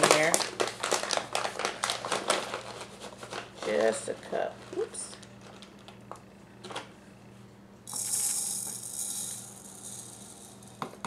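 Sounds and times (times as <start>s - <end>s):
rice grains pouring: 7.9s - 10.7s
rice rattling in metal cup: 7.9s - 11.0s.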